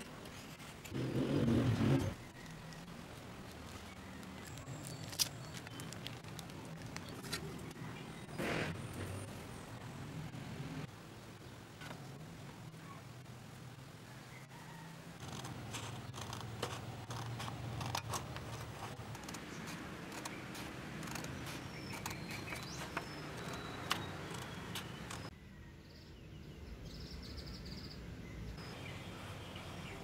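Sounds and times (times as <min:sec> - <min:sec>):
outdoor background: 0:00.0 - 0:30.0
scissors cutting paper: 0:15.2 - 0:25.3
bird chirping: 0:19.2 - 0:30.0.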